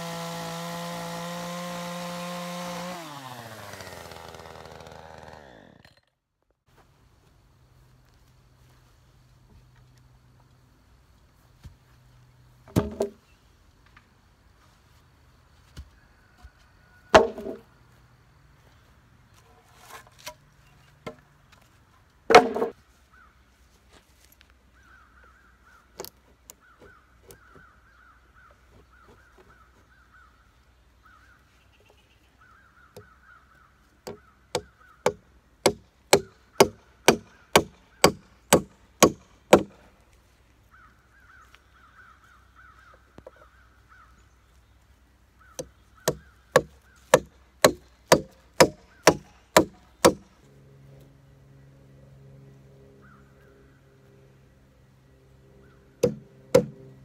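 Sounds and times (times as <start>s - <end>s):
hammer driving nails into wood: 34.0s - 39.8s, 46.0s - 50.3s, 56.0s - 56.8s.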